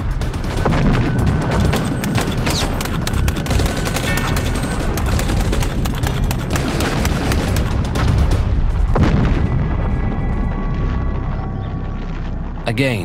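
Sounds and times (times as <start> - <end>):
rumble of battle noise: 0.0 - 13.0
machine gun bursts: 1.2 - 8.3.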